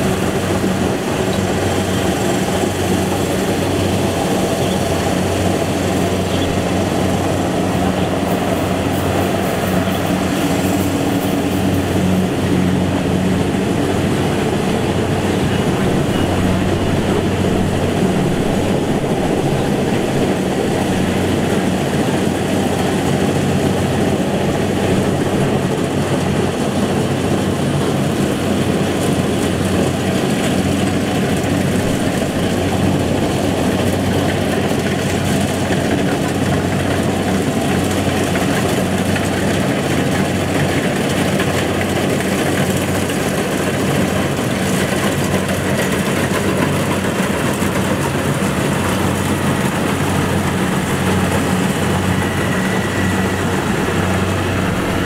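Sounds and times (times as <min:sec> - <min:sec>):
combine harvester diesel engine: 0:00.0 - 0:55.0
dense mechanical noise: 0:00.0 - 0:55.0.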